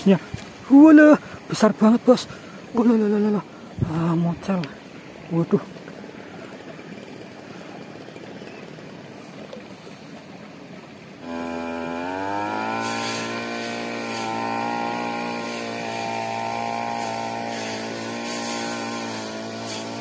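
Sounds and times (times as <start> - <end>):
small petrol engine starting and running: 11.2 - 20.0.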